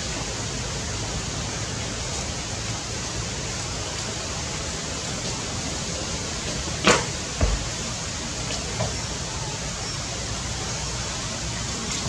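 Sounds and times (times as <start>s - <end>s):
rain hissing: 0.0s - 12.0s
low thump: 6.9s - 7.7s.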